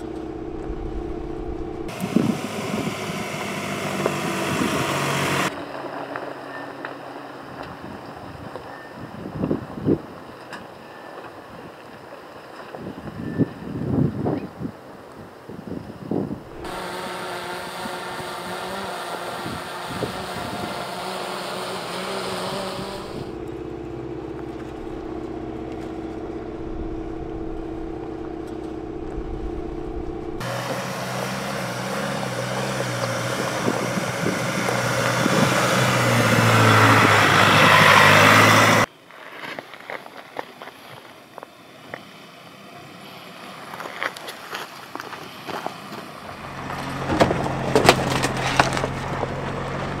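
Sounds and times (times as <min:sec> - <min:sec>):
pickup truck engine running: 0:00.0 - 0:05.5, 0:16.3 - 0:38.9, 0:46.2 - 0:50.0.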